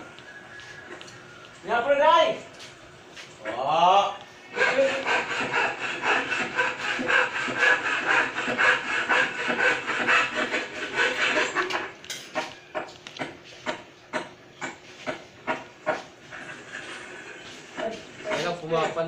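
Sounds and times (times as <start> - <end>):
spoon scraping plastic bowl: 9.2 - 13.2.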